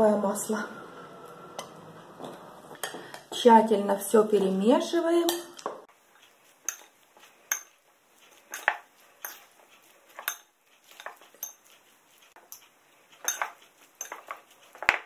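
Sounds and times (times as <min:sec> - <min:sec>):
utensils clinking in ceramic bowl: 0:06.2 - 0:15.0.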